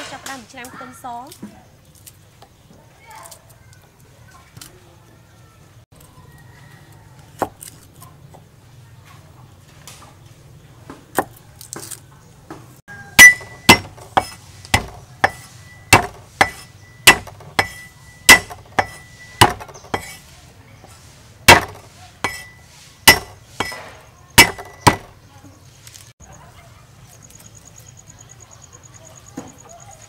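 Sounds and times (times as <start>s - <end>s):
knife chopping on wooden block: 13.2s - 20.2s, 20.8s - 25.1s.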